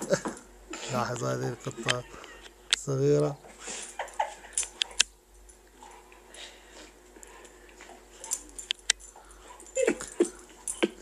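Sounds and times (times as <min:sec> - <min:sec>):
animals play-fighting clicks and scuffling: 0:03.4 - 0:11.0.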